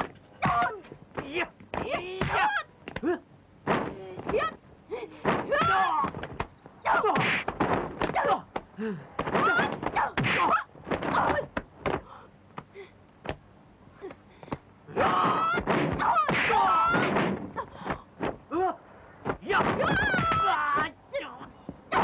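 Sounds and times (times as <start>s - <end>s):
punch and kick impacts: 5.2s - 8.4s, 15.0s - 17.5s
fighters shouting: 14.9s - 17.1s, 19.4s - 22.0s.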